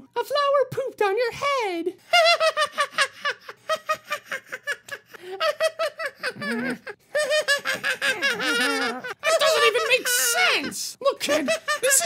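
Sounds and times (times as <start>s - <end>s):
high cartoonish voice laughing: 2.4s - 12.0s.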